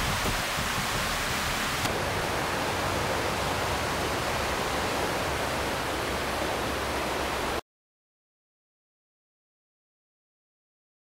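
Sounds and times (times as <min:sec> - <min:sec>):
steady hiss: 0:00.0 - 0:07.6.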